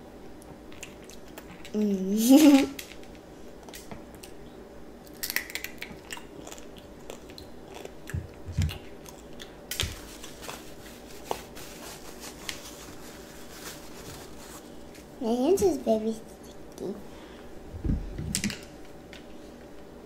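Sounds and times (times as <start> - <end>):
candy shells crunching when chewed: 5.0 - 11.3.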